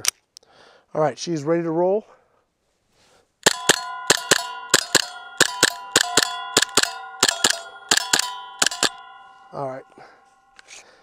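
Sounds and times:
bb clanging on steel plate: 3.4 - 10.8.

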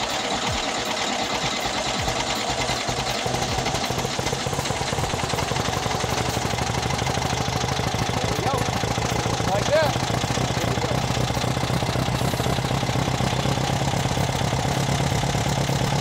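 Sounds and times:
car engine running rough: 0.0 - 16.0.

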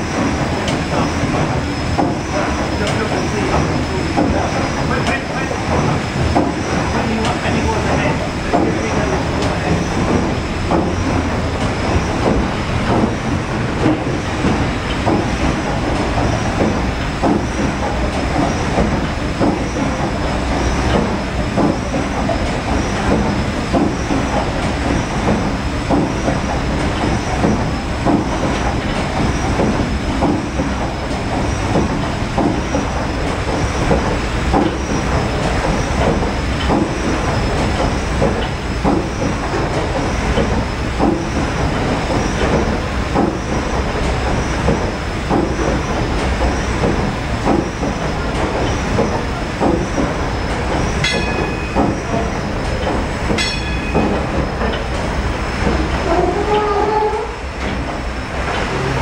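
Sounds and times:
steam engine mechanical clatter: 0.0 - 59.0.

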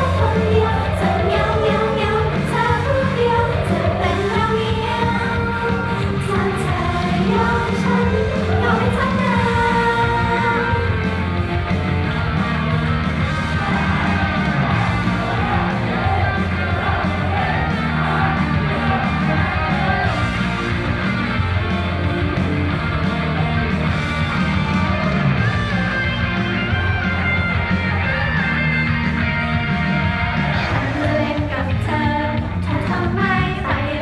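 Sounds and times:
woman singing: 0.0 - 11.0, 30.7 - 34.0
pop song over sound system: 0.0 - 34.0.

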